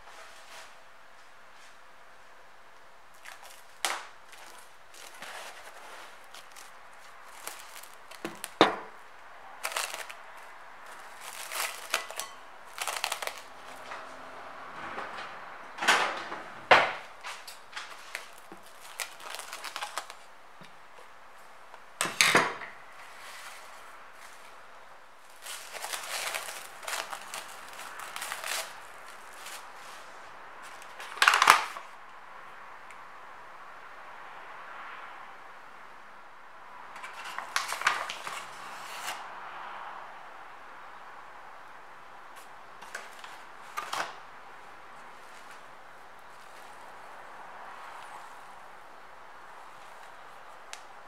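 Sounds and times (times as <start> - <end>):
cling film crackling and rustling: 3.1 - 14.2, 17.0 - 21.8, 22.9 - 32.0, 37.0 - 39.2, 42.4 - 51.0.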